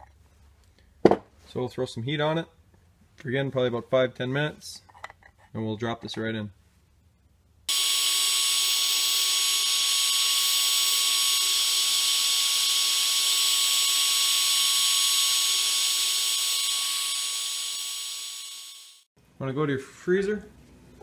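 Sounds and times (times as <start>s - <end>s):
heat gun blowing air: 7.7s - 19.1s.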